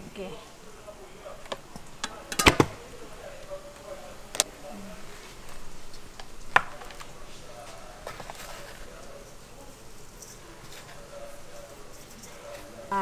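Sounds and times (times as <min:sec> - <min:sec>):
kitchen ware clanking: 0:02.0 - 0:02.8.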